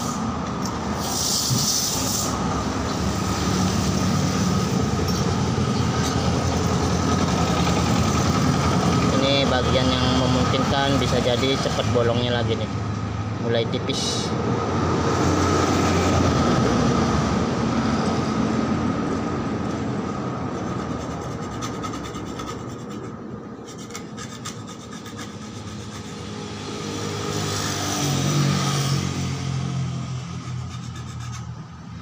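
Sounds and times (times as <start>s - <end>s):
vehicle engine running: 4.2s - 10.7s
stick scraping putty on metal: 20.5s - 26.4s, 30.2s - 32.0s.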